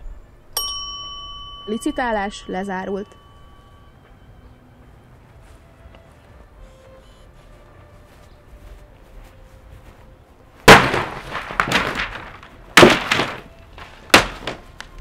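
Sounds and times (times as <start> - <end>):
picture frame smashing: 10.6 - 14.7
clatter of breaking pieces: 10.7 - 14.6.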